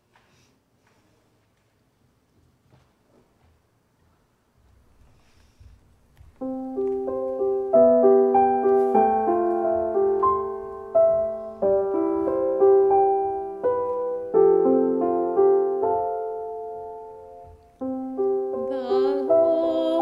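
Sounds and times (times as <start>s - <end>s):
piano music: 6.4s - 20.0s.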